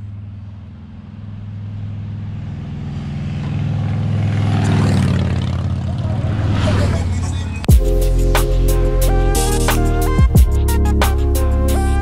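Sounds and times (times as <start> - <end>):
road and wind noise: 0.0 - 9.4
vehicle engine humming: 0.0 - 12.0.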